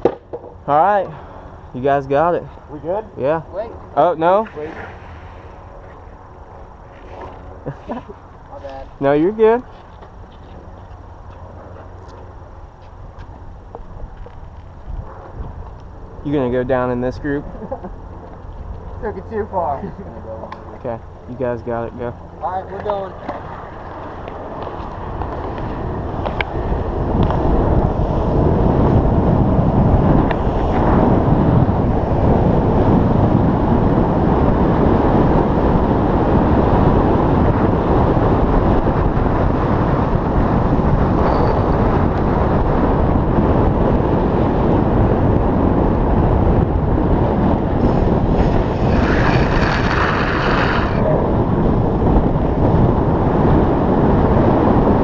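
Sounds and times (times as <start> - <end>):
wheels rolling on asphalt: 0.0 - 55.0
wind rushing over microphone: 0.0 - 55.0.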